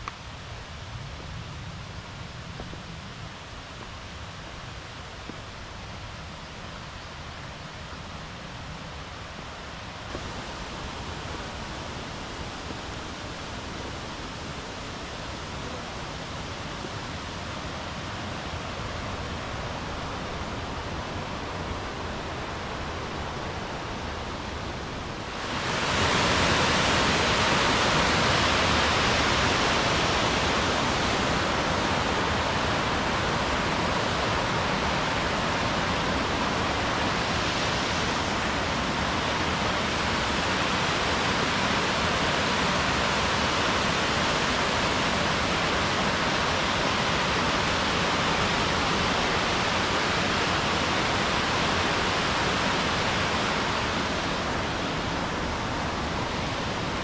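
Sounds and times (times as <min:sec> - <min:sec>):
water rushing over rocks: 0:09.7 - 0:57.0.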